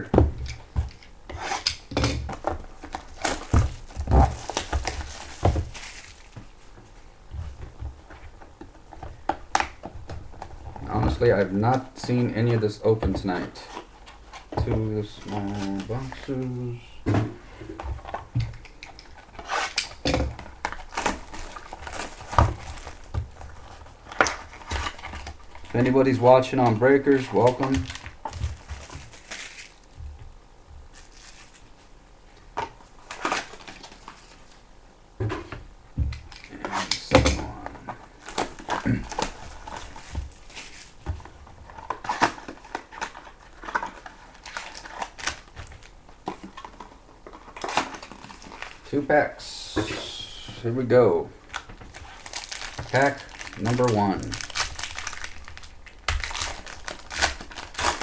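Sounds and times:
plastic wrap crinkling and tearing: 2.4 - 6.6, 19.0 - 30.0, 38.0 - 49.0, 51.4 - 58.0.

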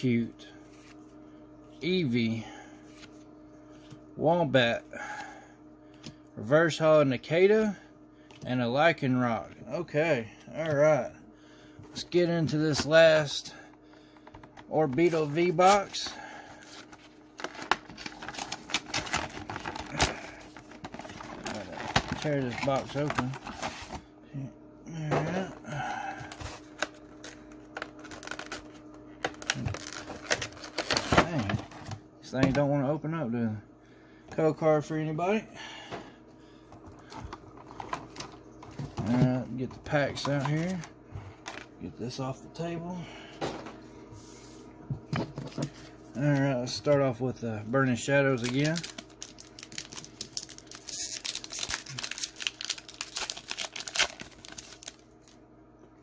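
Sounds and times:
stiff plastic packaging crackling: 14.2 - 24.0, 26.3 - 31.9, 48.0 - 55.4
foil wrapper crinkling and tearing: 15.0 - 24.0, 26.2 - 31.8, 48.0 - 55.4.

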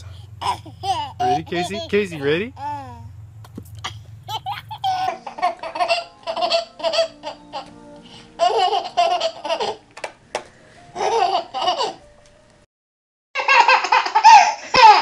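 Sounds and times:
toddler laughing: 0.3 - 3.1, 3.8 - 7.8, 8.4 - 9.8, 11.0 - 12.0, 13.4 - 15.0.

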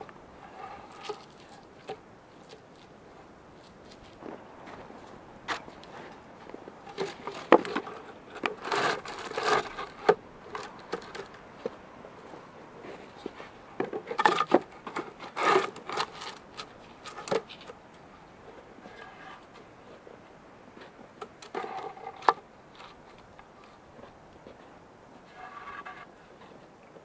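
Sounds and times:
logs scraping and rubbing: 0.0 - 26.7
wooden logs knocking together: 6.9 - 11.8, 13.8 - 17.8, 21.2 - 23.0.

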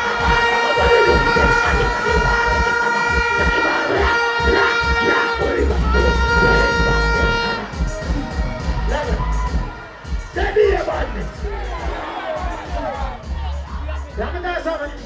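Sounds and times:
plastic horn long steady note: 0.0 - 8.3
crowd noise: 0.0 - 15.0
dancehall music with thumping bass: 0.0 - 15.0.

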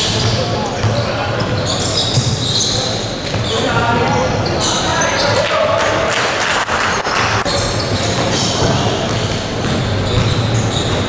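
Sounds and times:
sneakers squeaking: 0.0 - 5.6, 6.9 - 11.0
voices: 0.0 - 11.0
basketball dribbling: 7.8 - 11.0.

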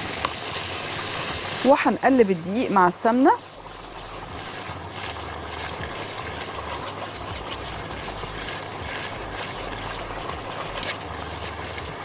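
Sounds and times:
flour and ghee sizzling in pot: 0.0 - 12.0
whisk scraping ticks: 0.0 - 12.0.

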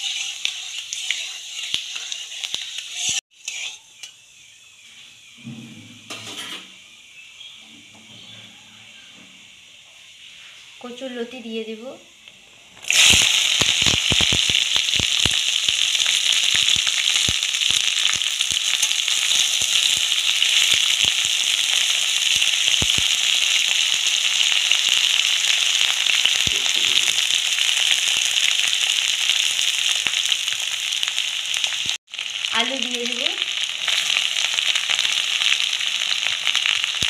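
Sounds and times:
oil crackling and popping: 0.0 - 3.7, 12.8 - 37.0
vegetables sizzling in hot oil: 0.0 - 4.6, 12.8 - 37.0.

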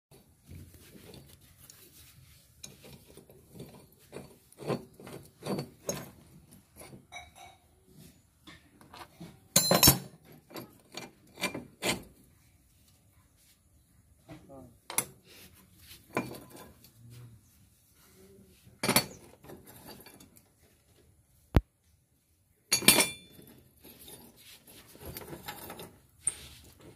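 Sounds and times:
spanners scraping metal: 2.6 - 7.5, 8.8 - 12.2, 18.8 - 20.5.

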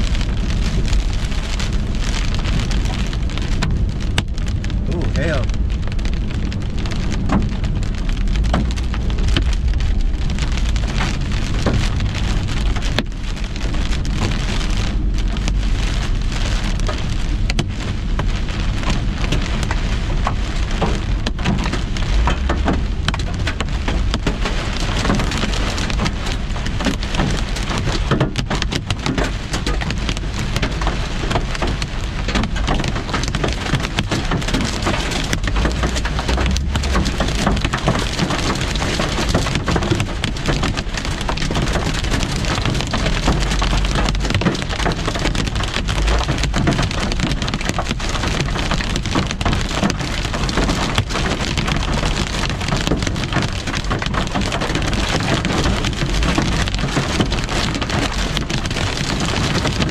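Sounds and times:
rain and hail on car roof: 0.0 - 59.9.

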